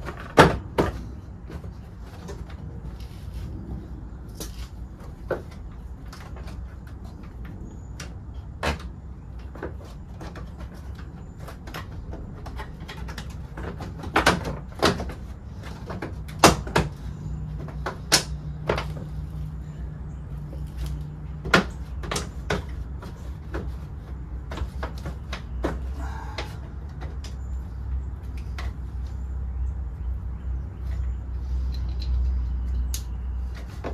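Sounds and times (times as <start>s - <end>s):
low steady rumble: 0.0s - 13.6s
plastic parts clicking and knocking: 5.2s - 19.2s, 20.8s - 27.4s.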